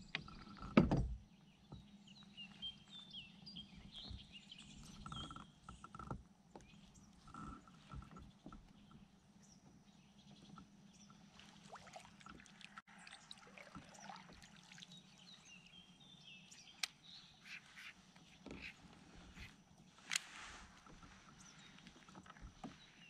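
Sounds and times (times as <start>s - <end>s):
bird chirps: 15.0s - 20.2s
faint bird calls: 16.4s - 23.0s
fishing rod and reel clicking: 19.4s - 20.9s.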